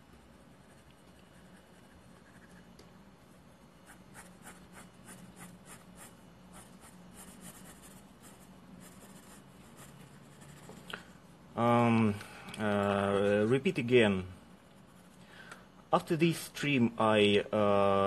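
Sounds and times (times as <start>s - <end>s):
pencil scratching on paper: 0.0s - 2.8s, 3.8s - 10.9s, 14.6s - 15.2s.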